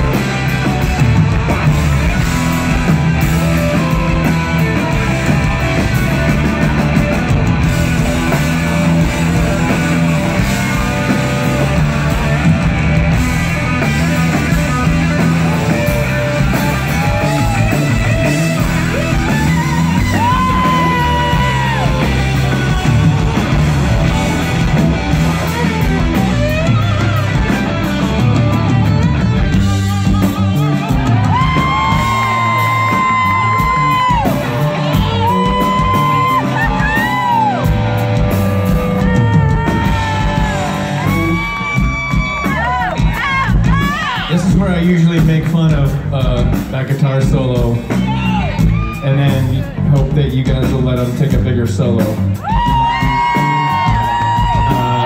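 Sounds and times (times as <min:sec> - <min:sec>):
electric guitar: 0:00.0 - 0:51.2, 0:51.8 - 0:55.0
bass guitar: 0:00.0 - 0:55.0
drum kit: 0:00.0 - 0:55.0.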